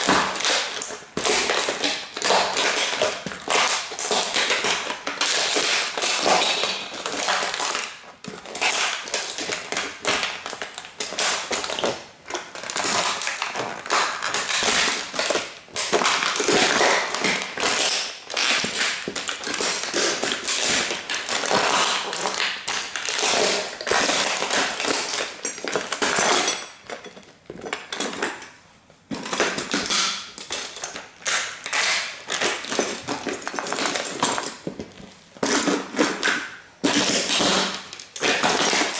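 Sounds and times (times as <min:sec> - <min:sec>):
boots crunching toy car: 0:00.0 - 0:12.0.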